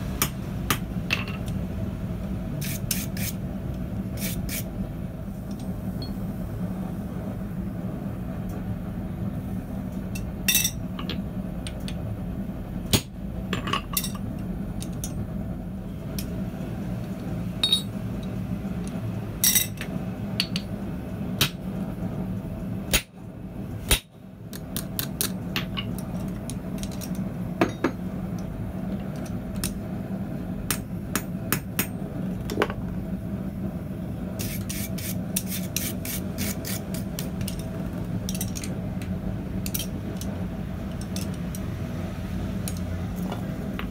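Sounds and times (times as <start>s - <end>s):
steady low hum: 0.0s - 43.9s
hammer striking hot steel: 17.6s - 18.0s, 23.9s - 24.1s.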